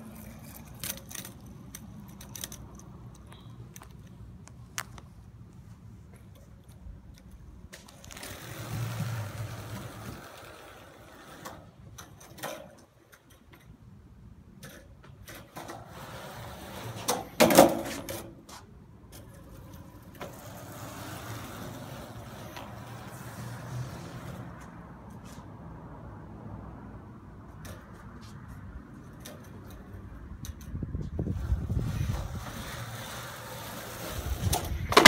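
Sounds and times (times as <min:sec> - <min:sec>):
skateboard wheels rolling on concrete: 0:00.0 - 0:35.0
skateboard clacks: 0:14.6 - 0:24.4, 0:31.8 - 0:35.0.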